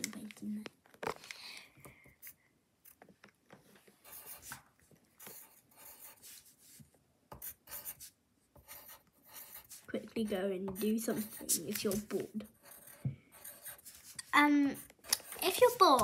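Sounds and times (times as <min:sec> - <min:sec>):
pencil scratching on paper: 0:04.0 - 0:04.6, 0:05.2 - 0:16.0.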